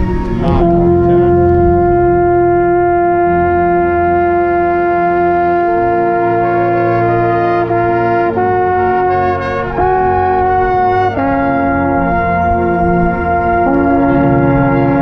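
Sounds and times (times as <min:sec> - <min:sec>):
brass band playing chords: 0:00.0 - 0:15.0.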